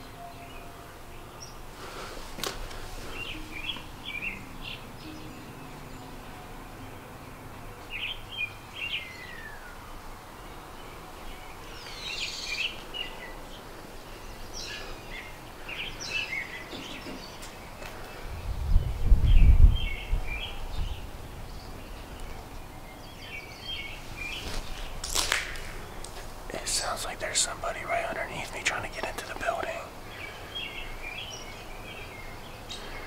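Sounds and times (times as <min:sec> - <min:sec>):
faint outdoor background noise: 0:00.0 - 0:33.0
small birds chirping: 0:00.0 - 0:33.0.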